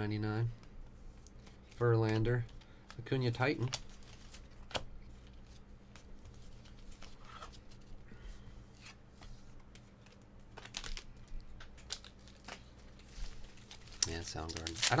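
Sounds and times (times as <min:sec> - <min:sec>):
steady low hum: 0:00.0 - 0:15.0
trading cards rustling and clicking: 0:09.6 - 0:15.0
foil wrappers crinkling: 0:10.1 - 0:15.0.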